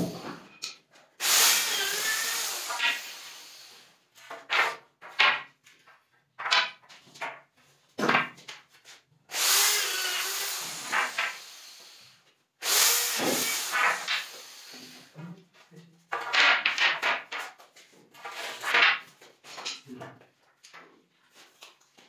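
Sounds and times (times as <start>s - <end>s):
electric drill boring into wood: 1.2s - 3.9s, 9.3s - 15.1s
wood knocks and scrapes: 4.2s - 9.0s, 16.1s - 20.2s.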